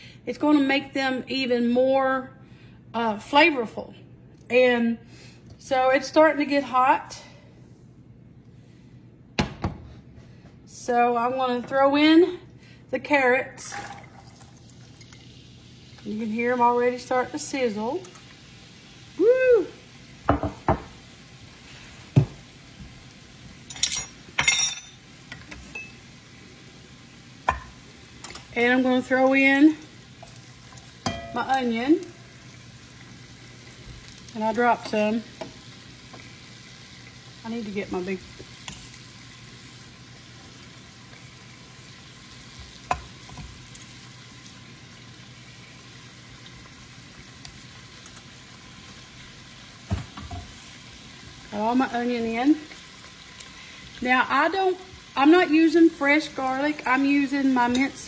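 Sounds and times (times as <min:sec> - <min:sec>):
carrots sizzling in oil: 0:14.4 - 0:24.4, 0:25.0 - 0:58.0
glass and dishes clinking: 0:23.7 - 0:25.0, 0:31.0 - 0:31.4.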